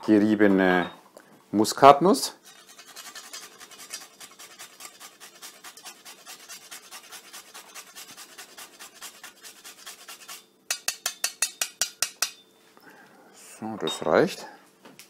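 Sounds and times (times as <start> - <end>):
nutmeg scraping on grater: 2.4 - 10.9.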